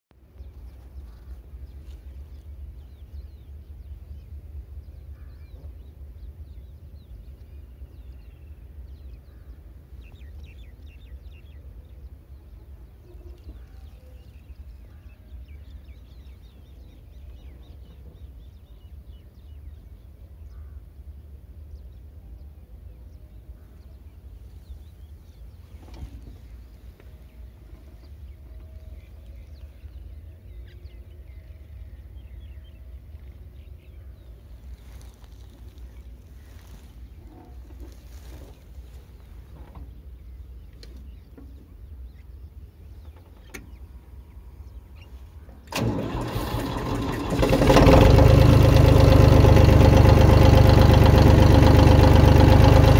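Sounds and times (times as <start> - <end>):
birds calling: 0.4 - 21.0, 23.0 - 52.9
tractor diesel engine rumbling: 45.4 - 52.9.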